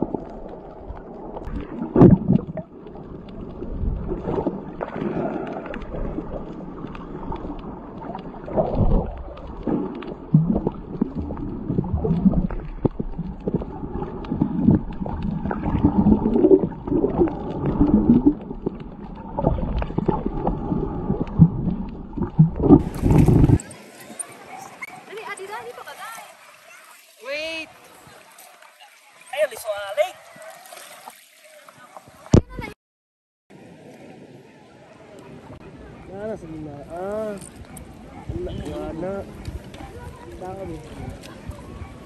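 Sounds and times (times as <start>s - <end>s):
muffled underwater gurgling: 0.0s - 23.8s
underwater knocks: 0.9s - 2.7s, 8.2s - 23.6s.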